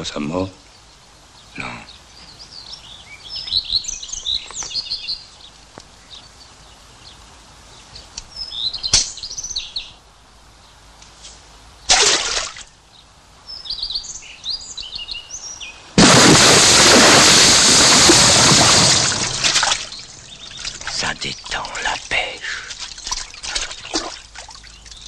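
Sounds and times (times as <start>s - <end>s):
small birds chirping: 0.0s - 11.9s, 12.6s - 16.0s, 17.0s - 25.0s
splash into river: 11.9s - 12.6s, 16.0s - 20.0s.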